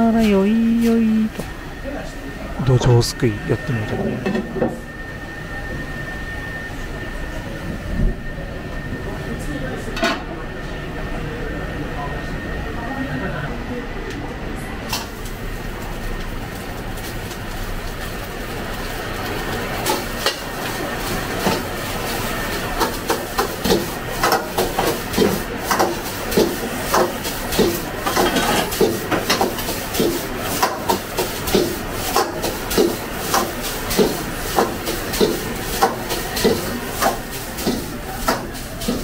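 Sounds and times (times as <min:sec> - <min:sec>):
gas burner roar: 0:00.0 - 0:39.0.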